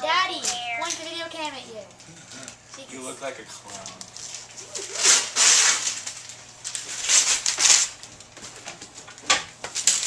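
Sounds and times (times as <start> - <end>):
gift wrap rustling and crinkling: 3.6 - 9.0.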